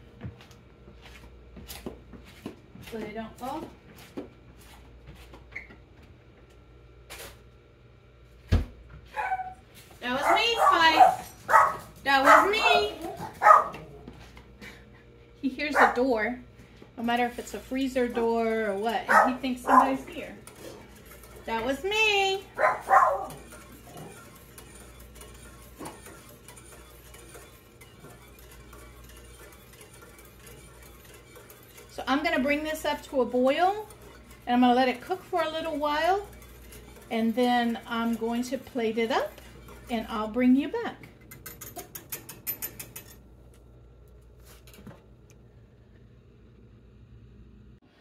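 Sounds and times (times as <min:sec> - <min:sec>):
dog barking: 0:09.1 - 0:09.6, 0:10.2 - 0:13.8, 0:15.8 - 0:16.0, 0:19.1 - 0:20.0, 0:22.6 - 0:23.4
whisk scraping a saucepan: 0:10.0 - 0:13.3, 0:17.0 - 0:43.2.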